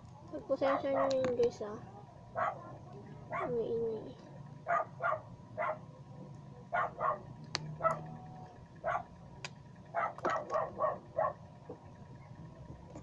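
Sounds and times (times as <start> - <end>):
dog barking: 0.8 - 1.2, 2.3 - 3.7, 4.6 - 5.9, 6.7 - 8.1, 8.8 - 9.1, 9.9 - 11.5.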